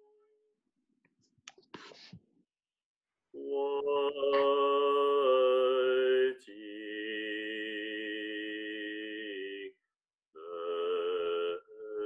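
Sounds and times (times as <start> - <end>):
deep voice chanting: 3.4 - 9.8, 10.4 - 12.0.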